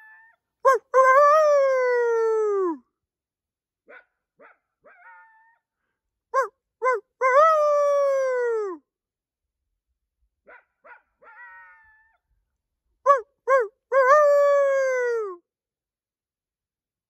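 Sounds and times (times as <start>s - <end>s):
person imitating coyote howl: 0.7s - 2.8s, 6.4s - 8.8s, 13.1s - 15.4s
faint echoing yip-howl call: 3.9s - 5.6s, 10.5s - 12.2s.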